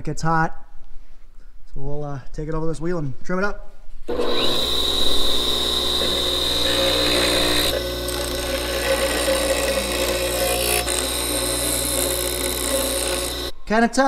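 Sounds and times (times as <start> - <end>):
bench grinder humming and whining: 4.1 - 13.6
grinding metal: 4.1 - 13.6.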